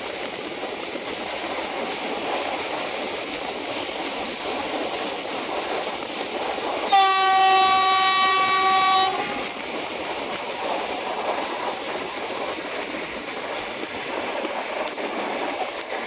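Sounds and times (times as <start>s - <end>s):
passenger train rolling: 0.0s - 16.0s
locomotive horn blast: 6.9s - 9.4s.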